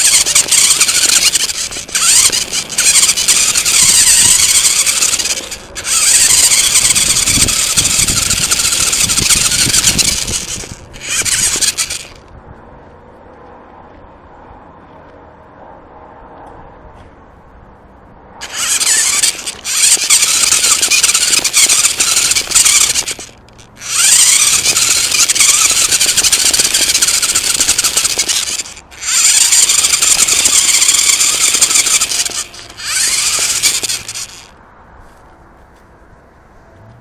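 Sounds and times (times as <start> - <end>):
toy car electric motor whining: 0.0 - 12.2, 18.4 - 34.5.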